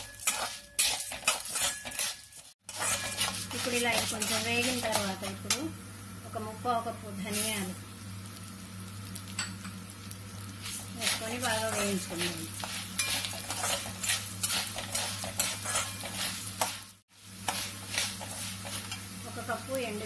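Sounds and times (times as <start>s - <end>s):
metal spatula scraping a pan: 0.0s - 5.6s, 10.6s - 19.1s
light sizzle: 0.0s - 20.0s.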